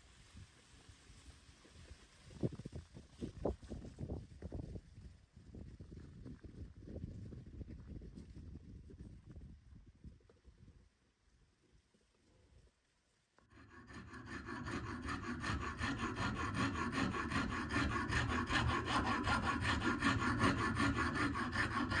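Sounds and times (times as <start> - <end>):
rhythmic rasping scrape: 13.5 - 22.0.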